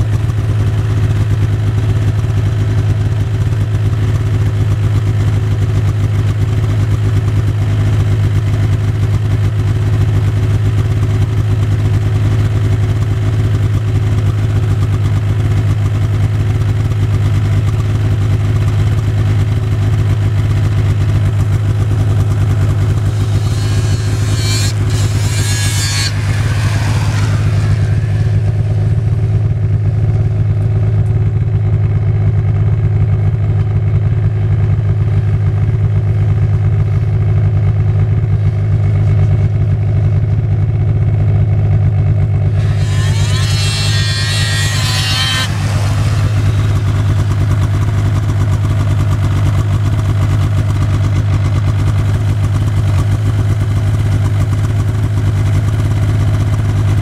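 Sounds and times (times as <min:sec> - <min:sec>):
snowmobile engines droning: 0:10.6 - 0:31.7, 0:42.4 - 0:51.6
snowmobile revving with rising whine: 0:20.5 - 0:31.0, 0:42.4 - 0:50.4
snowmobile passing close: 0:21.9 - 0:30.2, 0:42.5 - 0:49.1.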